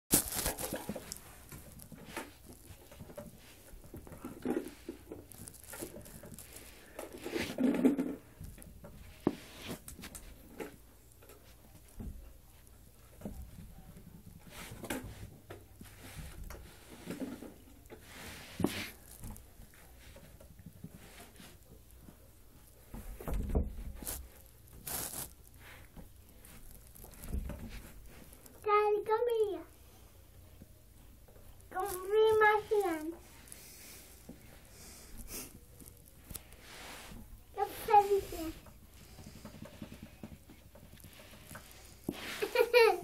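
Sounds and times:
patting and scratching on carpet: 0.1 - 28.7, 31.5 - 43.0
rustling: 0.1 - 43.0.

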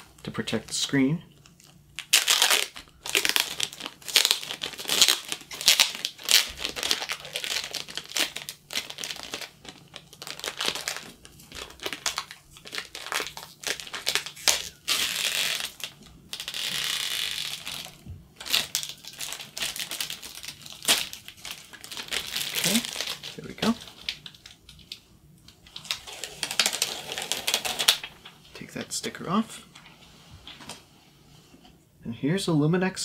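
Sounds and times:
plastic film peeling and crinkling: 0.0 - 29.2.

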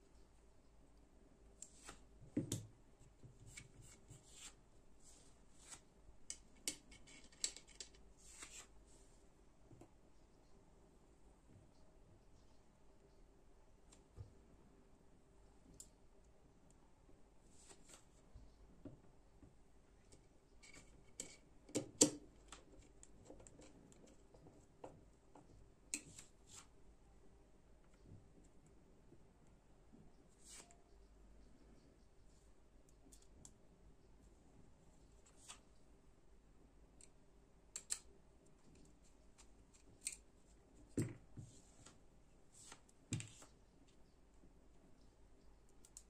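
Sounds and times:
screwdriver clicks and scrapes: 6.3 - 8.0.

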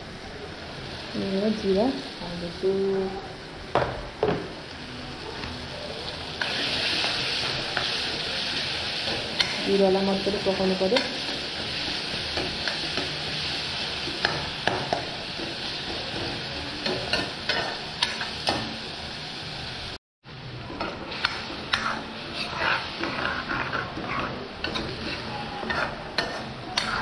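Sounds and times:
food sizzling in a pan: 0.0 - 27.0
spoon clicking and scraping pan: 21.2 - 27.0.

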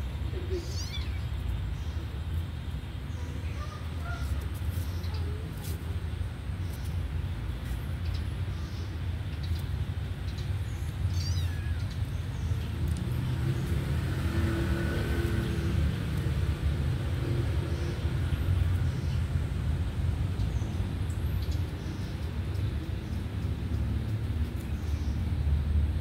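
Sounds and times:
vehicle passing by: 12.2 - 26.0.

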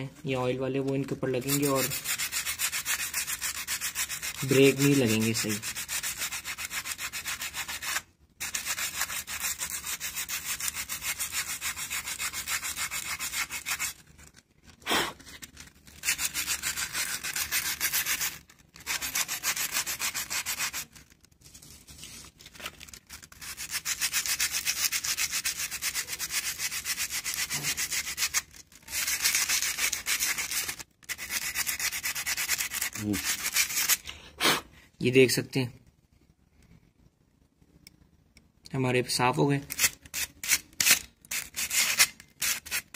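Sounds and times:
sandpaper rasping: 1.3 - 14.0, 15.5 - 21.1, 22.9 - 34.0, 39.7 - 42.9.

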